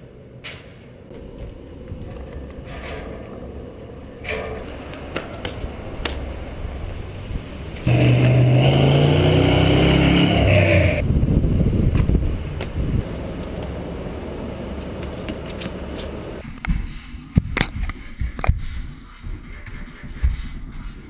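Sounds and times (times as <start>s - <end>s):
outdoor rumble: 0.0s - 16.4s
vehicle engine passing by: 5.7s - 16.4s.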